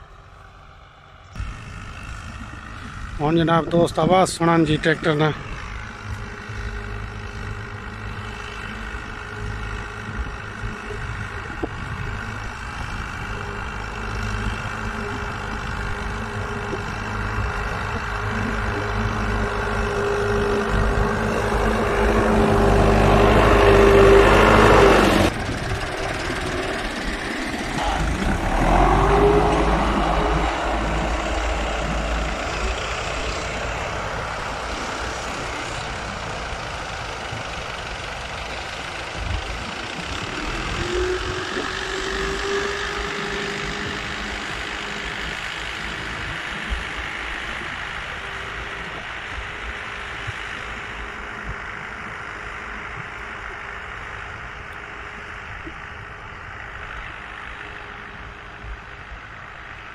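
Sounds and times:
tractor diesel engine under load: 0.0 - 59.9.

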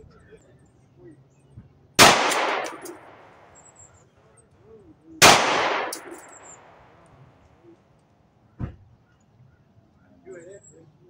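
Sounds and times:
pistol shot with echo: 2.0 - 3.6, 5.2 - 7.0.

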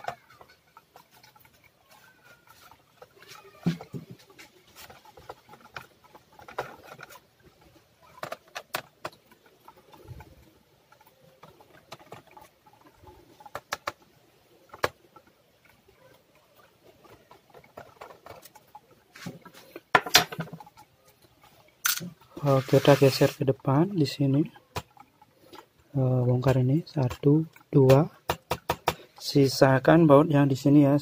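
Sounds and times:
small screws clattering: 21.8 - 22.2.

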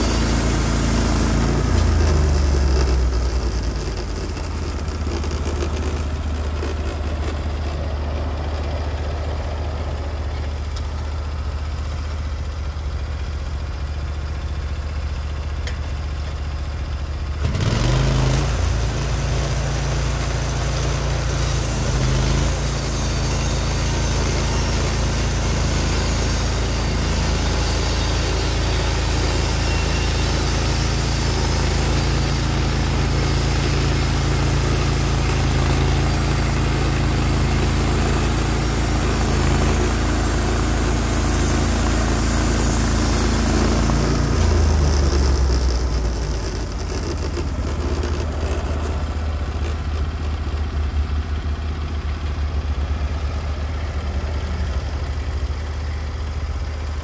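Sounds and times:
sawmill engine revving: 0.0 - 12.3, 17.3 - 57.0
hiss: 20.5 - 44.6.

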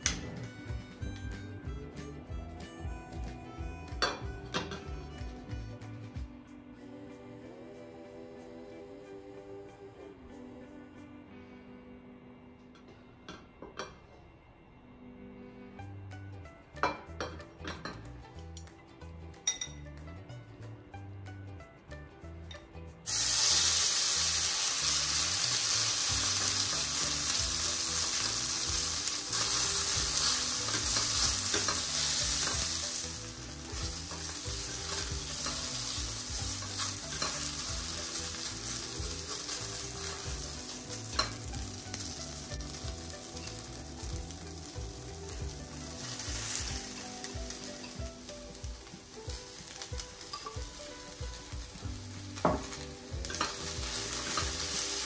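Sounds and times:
food sizzling in frying pan: 23.1 - 55.0
chopsticks tapping on pan: 52.4 - 53.6.

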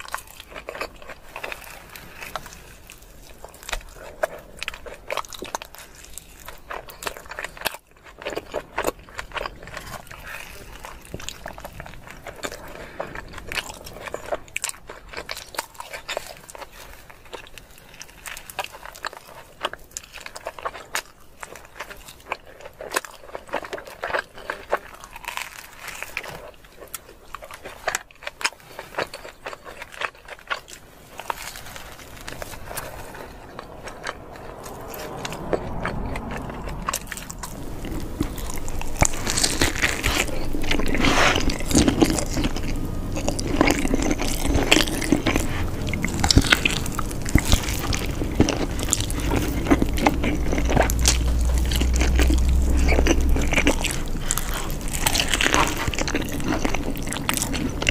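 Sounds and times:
chewing and crust crunching: 0.0 - 57.9
low steady hum: 30.8 - 57.9.

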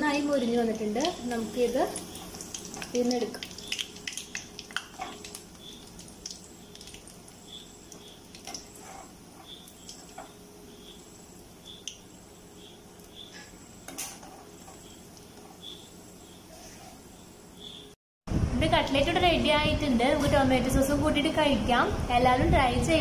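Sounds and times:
metal skimmer scraping pan: 8.5 - 10.3.

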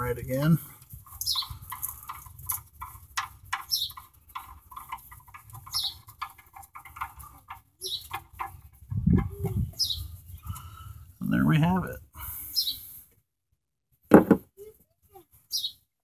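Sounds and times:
bird chirping: 1.1 - 2.6, 3.5 - 11.4, 12.5 - 12.9, 15.4 - 15.8.

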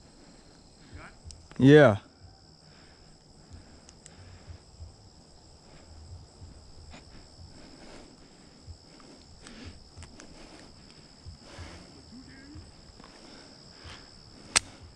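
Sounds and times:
high-pitched insect chorus: 0.0 - 14.9
faint ticks: 3.1 - 4.3, 8.9 - 11.1.

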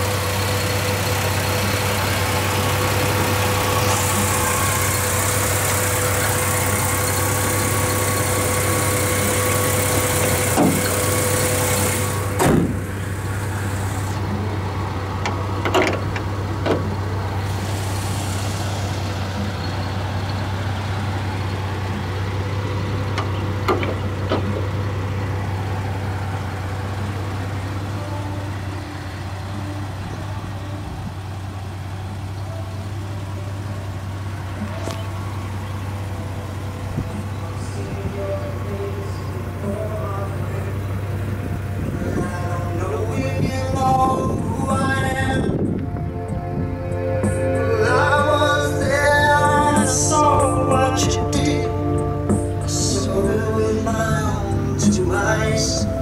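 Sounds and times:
car engine idling: 0.0 - 56.0
sharp knocks or clicks: 23.7 - 24.7.

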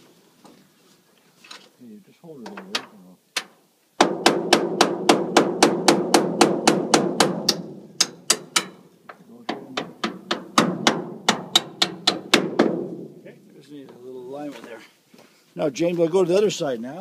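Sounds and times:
small hammer tapping metal: 7.4 - 8.8, 9.5 - 12.3.

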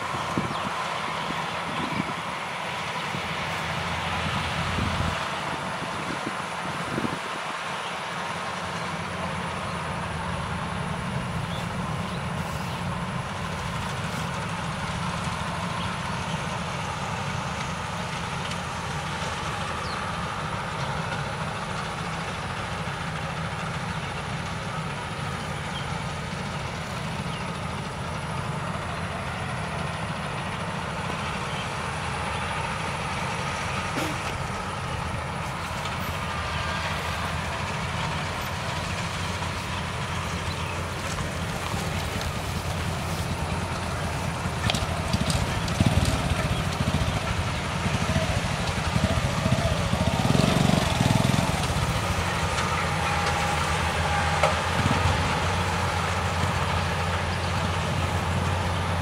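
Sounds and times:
combine harvester engine drone: 0.0 - 59.0.

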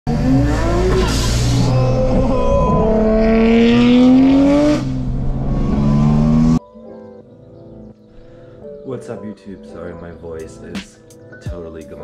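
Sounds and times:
car engine accelerating: 0.1 - 6.6.

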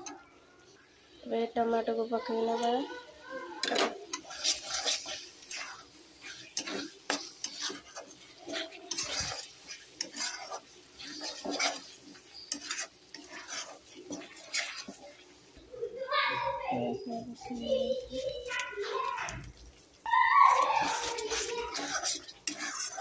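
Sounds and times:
sauce sizzling: 0.0 - 23.0
metal spatula scraping pan: 2.3 - 15.6, 20.4 - 23.0.

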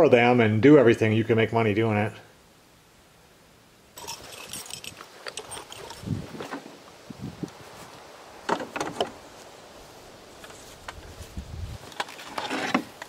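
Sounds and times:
tools clinking and rattling: 4.0 - 6.7.

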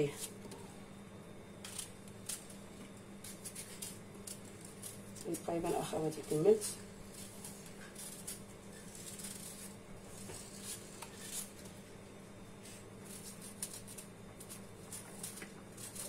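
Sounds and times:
steady low hum: 0.0 - 16.0
knife scraping vegetable: 3.2 - 11.7, 12.7 - 16.0.

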